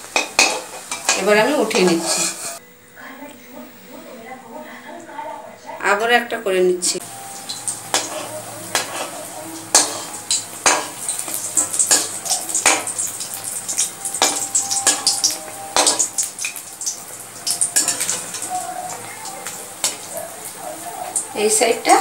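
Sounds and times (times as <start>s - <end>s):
batter sizzling in oil: 0.0s - 2.6s, 6.9s - 22.0s
metal spoon scraping pan: 0.1s - 2.6s, 7.6s - 16.5s, 17.4s - 18.5s.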